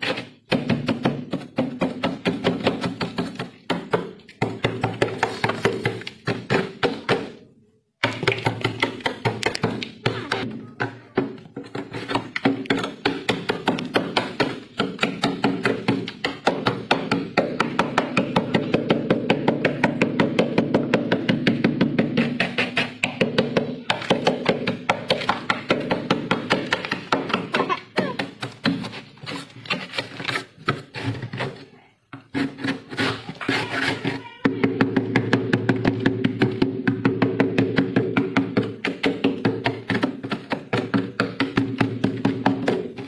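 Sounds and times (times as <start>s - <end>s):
metal scraper scraping frost: 32.3s - 34.3s.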